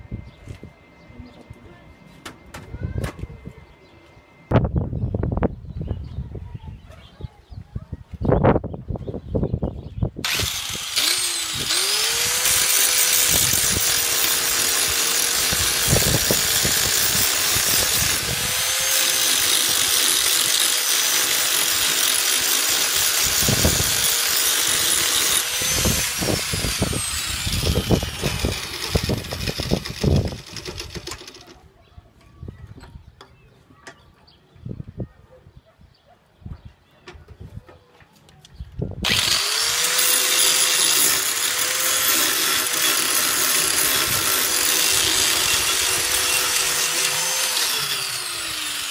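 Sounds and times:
angle grinder grinding steel: 10.2s - 31.4s, 39.0s - 48.9s.

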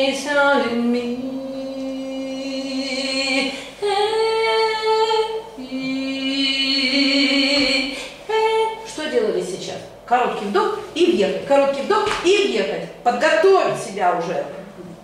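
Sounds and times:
person singing unaccompanied: 0.0s - 8.8s.

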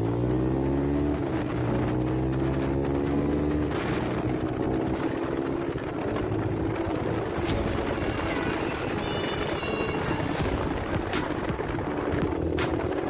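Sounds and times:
motorcycle engine accelerating: 0.0s - 8.8s, 10.4s - 13.0s.

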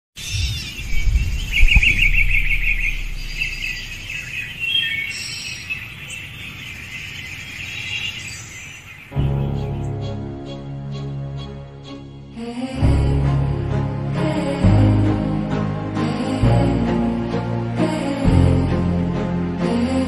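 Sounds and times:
small birds chirping: 0.2s - 10.2s
low rumble: 0.8s - 4.6s.

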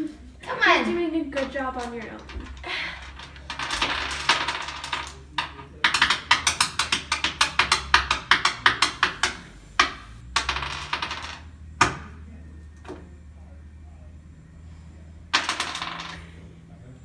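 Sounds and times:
plastic cubes clicking on wooden table: 1.4s - 12.0s, 15.4s - 16.2s.

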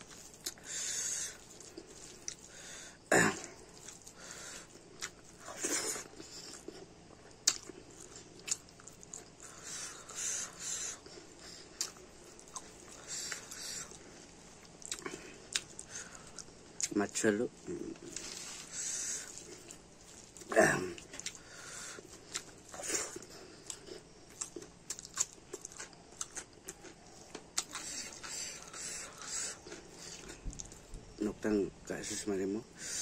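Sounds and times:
chewing and lip-smacking: 0.0s - 3.0s, 3.6s - 31.2s.

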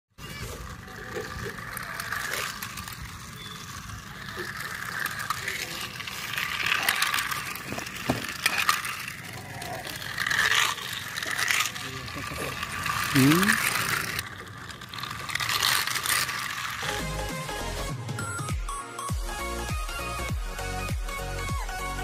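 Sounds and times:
plastic track clicking and rattling: 0.2s - 17.6s
toy car motor whining: 0.2s - 22.0s.

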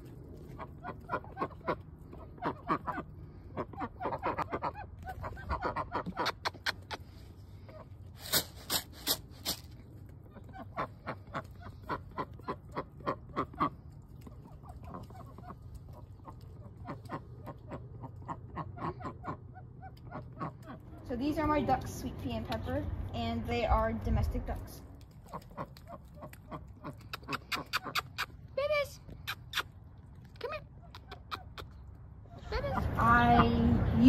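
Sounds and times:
ducks quacking: 0.4s - 7.9s, 10.3s - 21.0s.

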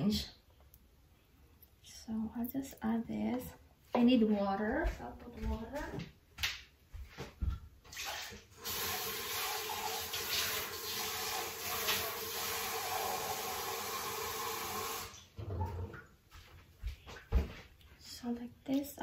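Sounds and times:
tap water filling a cup: 8.1s - 15.1s.

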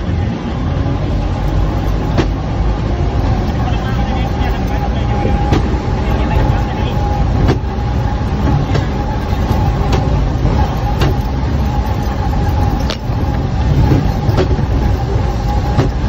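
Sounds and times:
vehicle engine rumble with whine: 0.0s - 16.0s.

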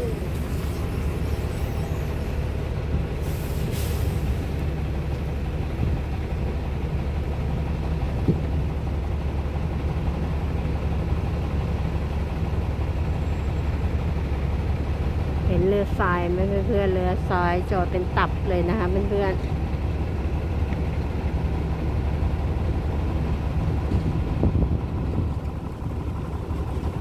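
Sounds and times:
engine noise: 0.0s - 27.0s
wind on microphone: 23.8s - 27.0s.

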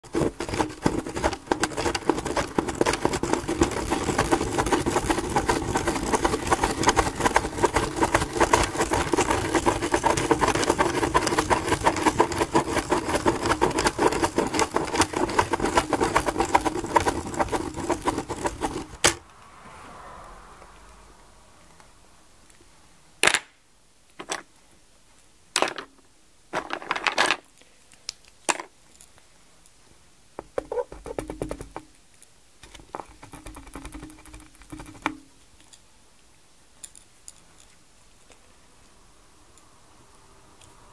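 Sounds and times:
pen scratching on paper: 0.0s - 19.1s.

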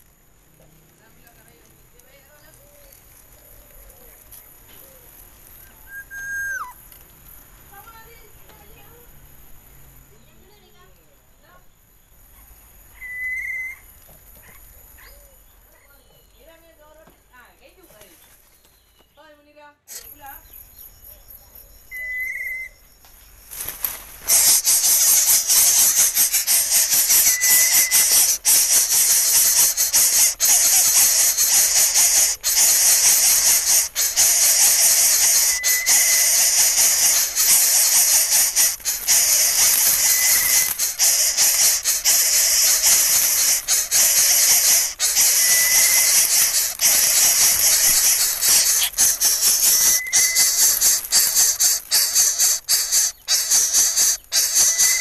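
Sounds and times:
bird nestling hissing: 0.9s - 9.0s, 19.9s - 20.6s, 21.9s - 55.0s.

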